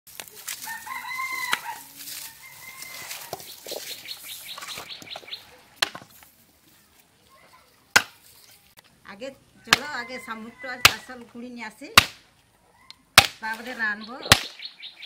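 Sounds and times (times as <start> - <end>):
dry straw rustling: 0.1 - 8.8
rooster crowing: 0.6 - 3.5, 9.6 - 11.2.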